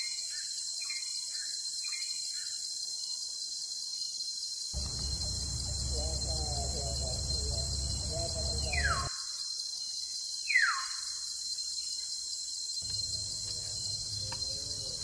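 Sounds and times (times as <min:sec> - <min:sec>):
insects buzzing: 0:00.3 - 0:15.0
birds warbling: 0:04.8 - 0:09.1, 0:12.8 - 0:15.0
falling whistles: 0:04.8 - 0:09.1.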